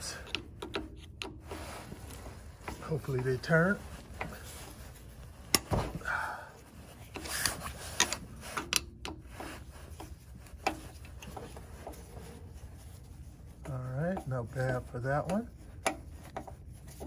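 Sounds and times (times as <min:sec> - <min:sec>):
screwdriver metal clicks and scraping: 0:00.0 - 0:03.5, 0:07.0 - 0:12.5.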